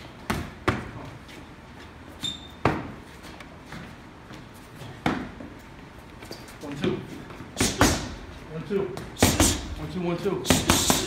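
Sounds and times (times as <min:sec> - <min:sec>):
brief high squeak: 0:02.2 - 0:02.6
punches smacking focus mitts: 0:09.0 - 0:09.8, 0:10.4 - 0:11.0.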